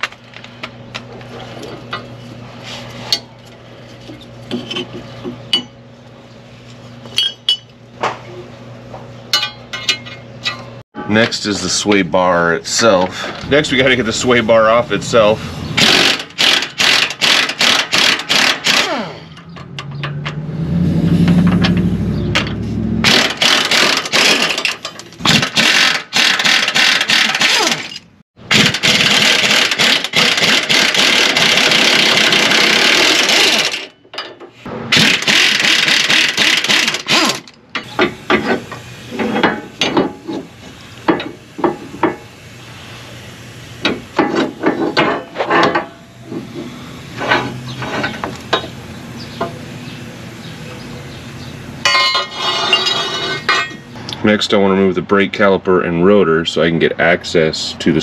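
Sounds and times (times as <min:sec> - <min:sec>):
metal parts and tools clanking: 0:00.0 - 0:05.8, 0:07.0 - 0:08.4, 0:09.3 - 0:12.0, 0:15.8 - 0:42.3, 0:43.8 - 0:49.6, 0:51.8 - 0:54.0
impact wrench hammering: 0:15.8 - 0:20.4, 0:22.4 - 0:34.3.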